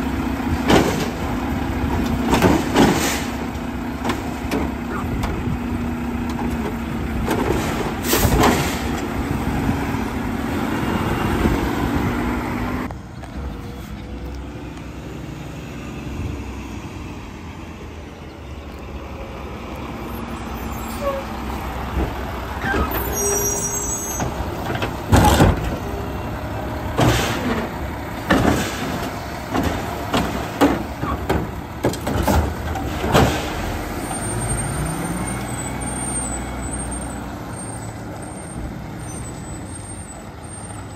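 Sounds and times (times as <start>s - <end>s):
diesel truck engine pulling away: 0.0s - 40.9s
clunks: 21.9s - 26.1s, 26.9s - 34.1s.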